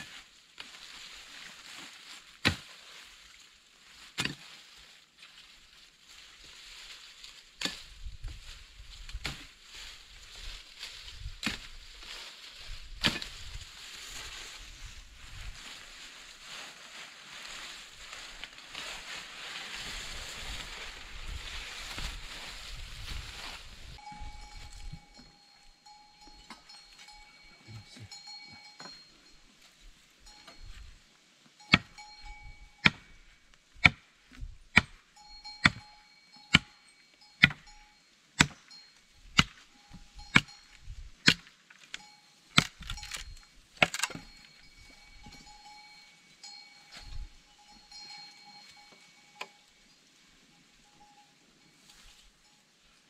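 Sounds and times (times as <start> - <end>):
hand tool striking wood: 2.4 - 2.7, 4.1 - 4.6, 9.1 - 9.6, 11.4 - 11.8, 13.0 - 13.5, 31.7 - 32.0, 32.8 - 33.2, 33.8 - 34.1, 34.7 - 35.0, 35.6 - 35.8, 36.5 - 36.8, 37.4 - 37.7, 38.4 - 38.7, 39.3 - 40.5, 41.2 - 41.5, 42.5 - 43.2.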